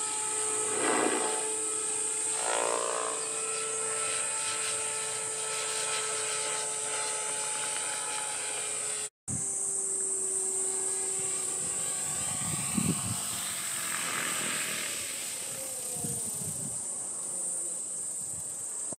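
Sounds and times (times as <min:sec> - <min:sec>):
lower tone gliding down: 0:00.0 - 0:17.8
model helicopter motor whine: 0:00.0 - 0:19.0.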